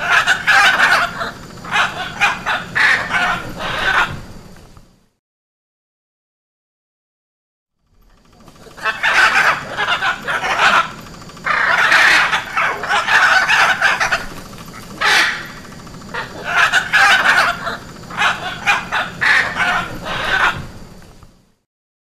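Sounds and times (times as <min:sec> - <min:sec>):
macaw squawking: 0:00.0 - 0:04.3, 0:08.1 - 0:20.9.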